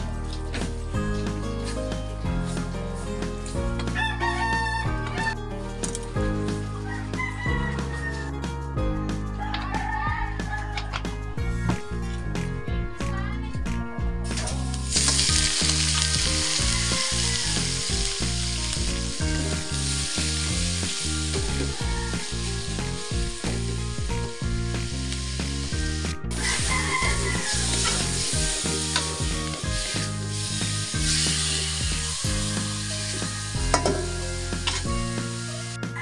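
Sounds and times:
meat sizzling in a wok: 14.5s - 36.0s.

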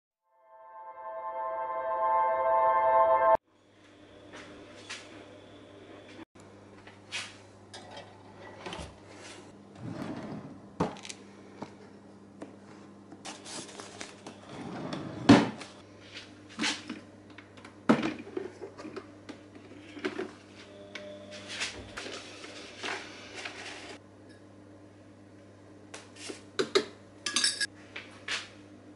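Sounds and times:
drawer opening and closing: 9.8s - 11.1s, 14.4s - 15.7s
paper coffee filters rustling: 13.3s - 14.2s.

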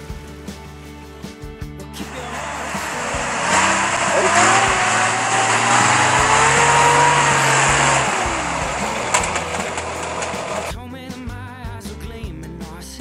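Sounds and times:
truck engine revving: 2.1s - 10.7s.

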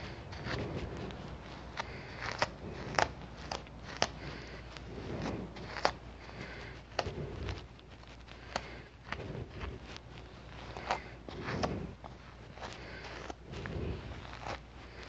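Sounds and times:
light shuffling: 0.0s - 15.0s.

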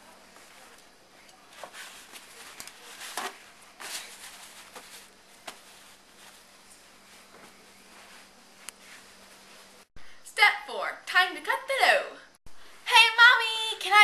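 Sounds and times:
plastic wrapping rustling: 1.4s - 9.8s.

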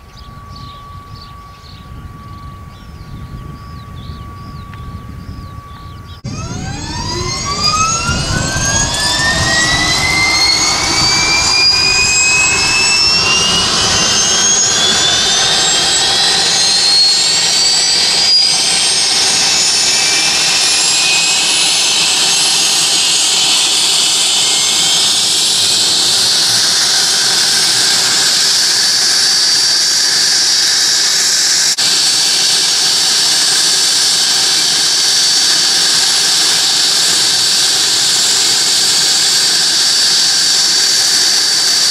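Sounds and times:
turbofan engine whine spooling up: 0.0s - 41.9s.

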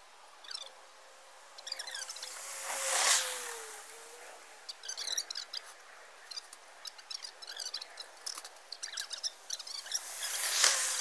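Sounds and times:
small birds chirping: 0.4s - 0.8s, 1.5s - 11.0s
soft whoosh: 2.1s - 4.3s, 9.8s - 11.0s.

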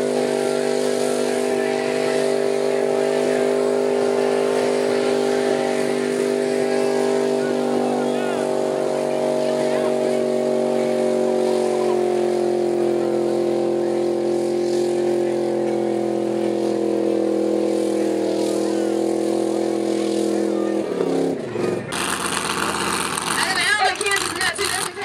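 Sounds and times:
truck engine revving high: 0.0s - 25.0s.

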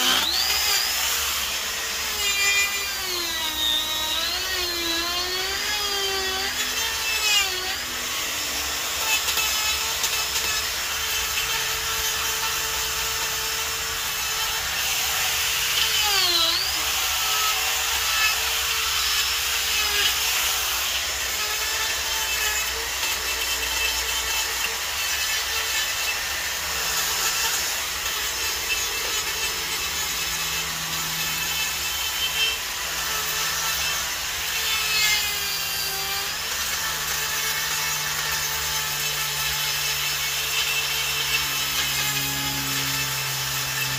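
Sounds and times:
die grinder cutting wood: 0.0s - 43.9s.

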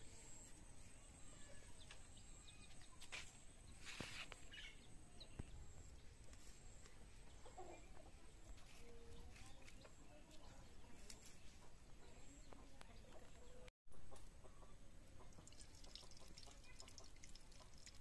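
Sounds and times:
faint chickens clucking: 4.3s - 17.7s.

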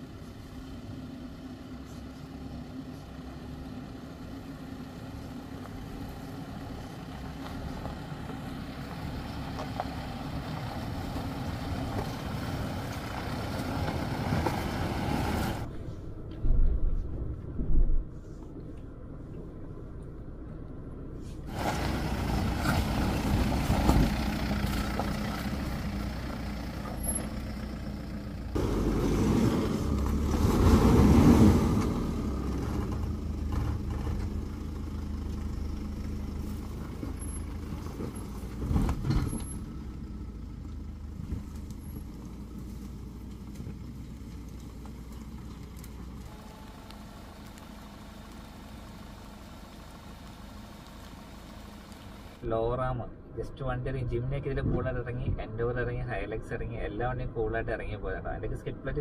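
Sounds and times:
diesel engine at low revs: 0.0s - 59.0s
tyres grinding over mud and stones: 5.3s - 15.7s, 21.5s - 52.4s.

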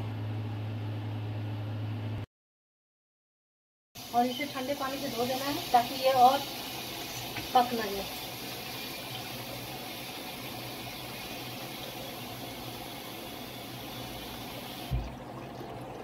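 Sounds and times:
tap water splashing in sink: 7.3s - 7.6s, 14.2s - 16.0s.

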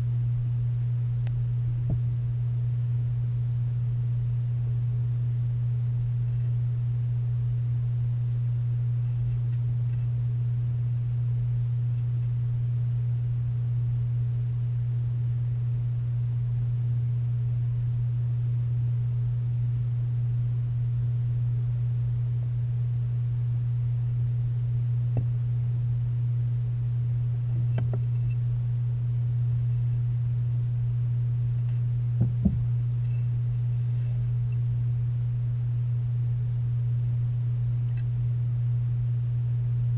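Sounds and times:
low electrical hum underwater: 0.0s - 39.9s
faint clicks and knocks: 27.5s - 28.4s.

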